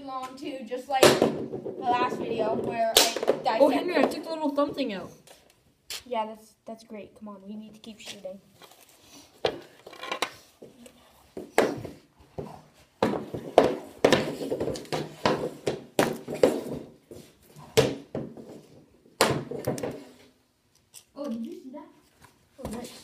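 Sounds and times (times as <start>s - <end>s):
hockey sticks striking pucks: 0.2s - 4.8s, 11.4s - 20.2s
pucks hitting hard surfaces: 0.2s - 4.9s, 9.4s - 20.3s.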